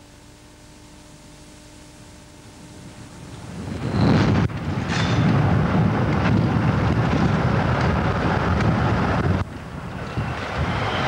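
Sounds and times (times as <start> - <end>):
diesel locomotive engine running: 0.0 - 11.0
wind rumble on microphone: 2.3 - 11.0.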